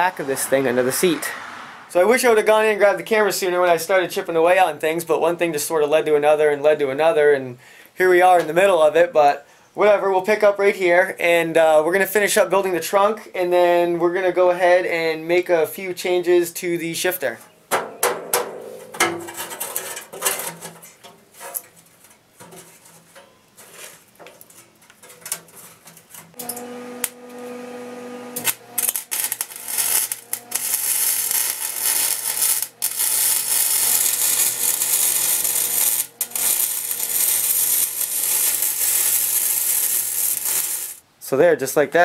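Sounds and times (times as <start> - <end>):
arc welder crackling sizzle: 26.3 - 41.0.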